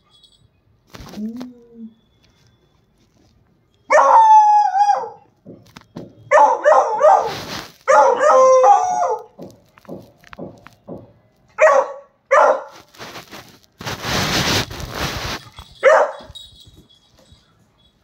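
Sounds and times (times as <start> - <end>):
dog barking: 3.9 - 4.3, 6.3 - 9.4, 11.6 - 12.8, 15.8 - 16.3.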